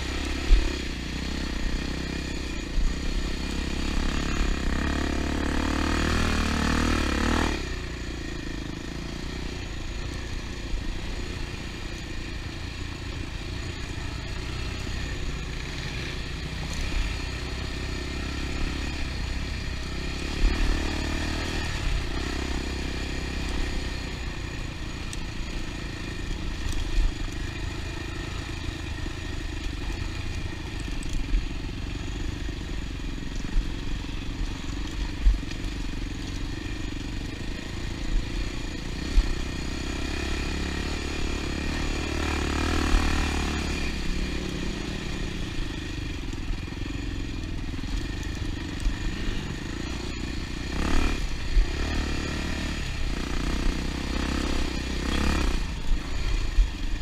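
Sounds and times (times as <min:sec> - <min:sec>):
dirt bike engine running: 0:00.0 - 0:57.0.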